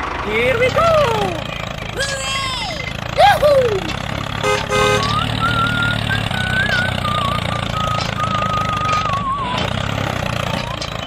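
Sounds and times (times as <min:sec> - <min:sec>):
tractor engine rumbling: 0:00.0 - 0:11.0
short horn toots: 0:04.4 - 0:05.2
high wavering whistle: 0:05.0 - 0:09.6.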